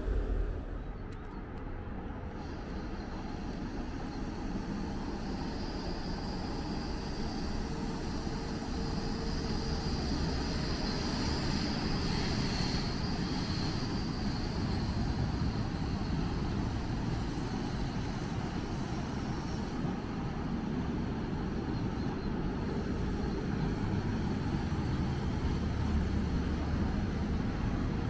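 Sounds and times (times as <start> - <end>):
high whine: 0.0 - 2.3
train running noise: 0.0 - 28.0.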